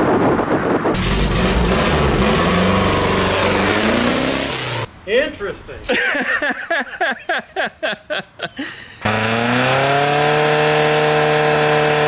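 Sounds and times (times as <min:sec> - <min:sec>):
engine pulsing and droning: 0:00.8 - 0:04.9, 0:09.0 - 0:12.0.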